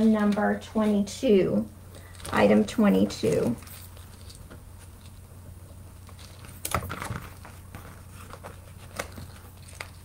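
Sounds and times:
low steady hum: 0:00.0 - 0:10.0
packaging rustling and clicks: 0:03.2 - 0:10.0.

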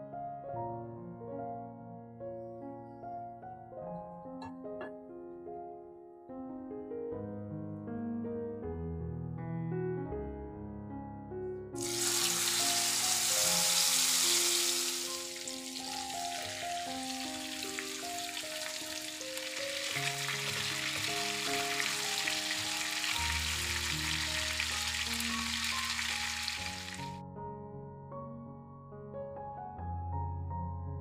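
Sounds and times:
soft piano music: 0:00.0 - 0:31.0
chicken sizzling in oil: 0:11.8 - 0:27.2.

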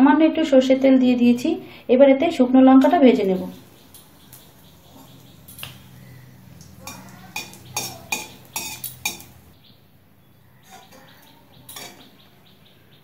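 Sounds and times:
metal spatula scraping a pan: 0:06.8 - 0:09.4, 0:10.6 - 0:12.1.

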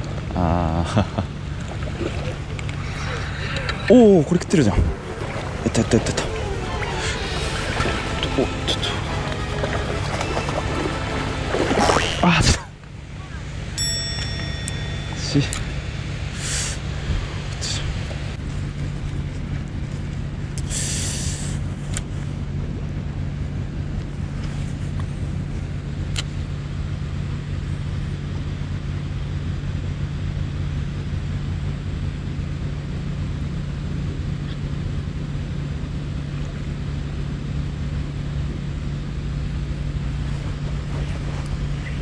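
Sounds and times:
engine droning: 0:00.0 - 0:42.0
wind: 0:00.0 - 0:42.0
surf: 0:01.4 - 0:15.8.

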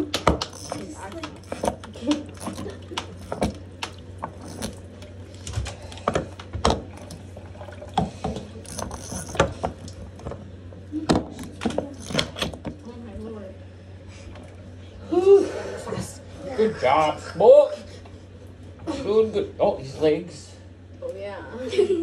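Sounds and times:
shower hose clicking on faucet: 0:00.4 - 0:05.5, 0:08.6 - 0:10.0, 0:12.0 - 0:12.6.

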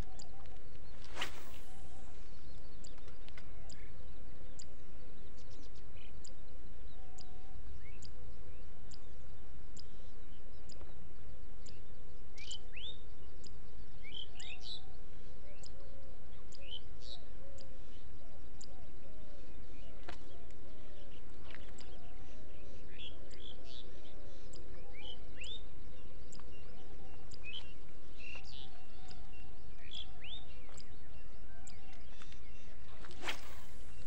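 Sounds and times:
faint high ticks: 0:00.0 - 0:04.8, 0:05.4 - 0:11.0, 0:11.6 - 0:12.7, 0:15.5 - 0:19.0, 0:20.0 - 0:22.1, 0:26.2 - 0:31.0
birds chirping: 0:00.0 - 0:34.0.

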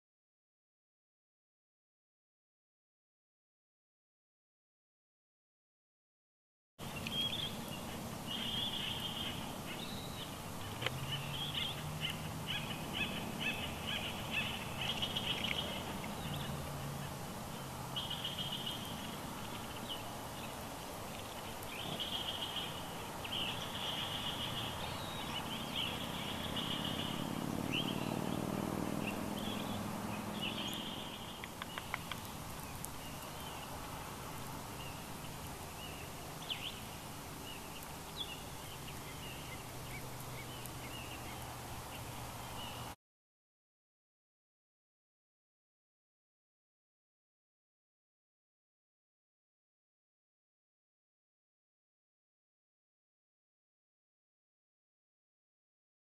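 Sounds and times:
woodpeckers calling: 0:06.9 - 0:17.3, 0:18.0 - 0:33.8.

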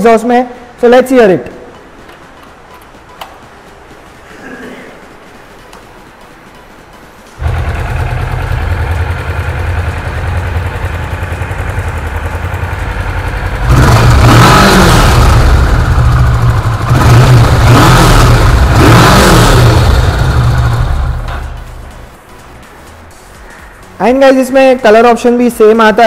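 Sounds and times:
motorcycle engine idling and revving: 0:07.4 - 0:22.1.

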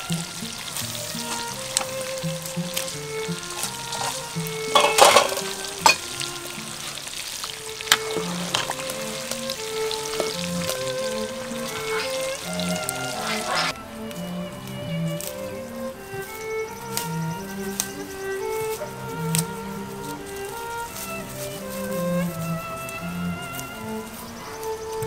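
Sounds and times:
soup boiling: 0:00.0 - 0:14.4
soft instrumental music: 0:00.0 - 0:25.0
splashing into pot: 0:00.4 - 0:13.7.

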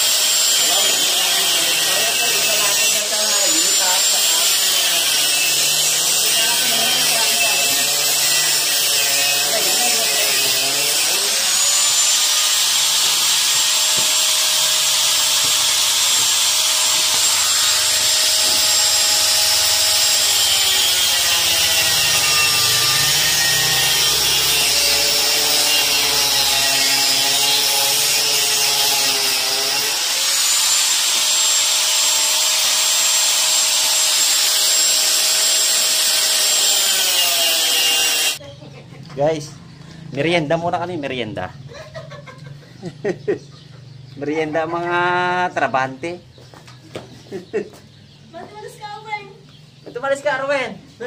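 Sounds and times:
angle grinder cutting steel: 0:00.0 - 0:38.4.

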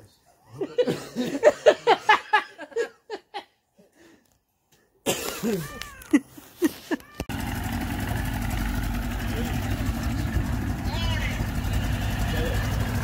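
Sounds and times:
men laughing: 0:00.5 - 0:03.6, 0:05.1 - 0:07.2, 0:11.6 - 0:13.0
boat motor running: 0:07.3 - 0:13.0
men talking: 0:09.2 - 0:13.0.

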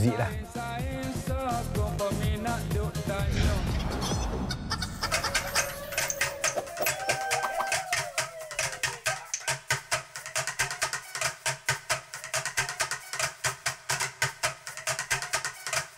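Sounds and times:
music with fast percussive beat: 0:04.9 - 0:15.9.

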